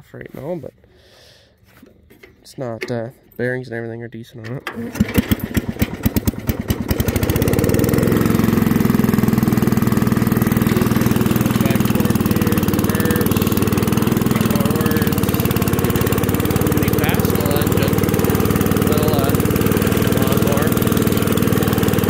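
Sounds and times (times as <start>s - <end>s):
riding mower engine running: 4.6s - 22.0s.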